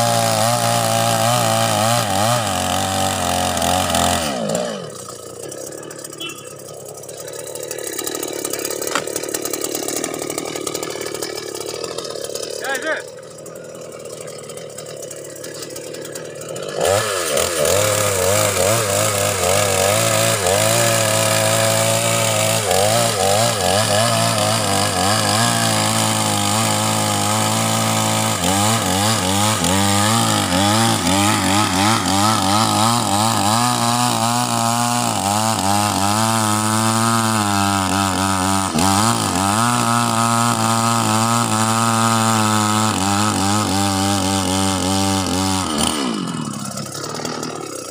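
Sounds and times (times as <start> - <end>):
chainsaw idling: 0.0 - 47.9.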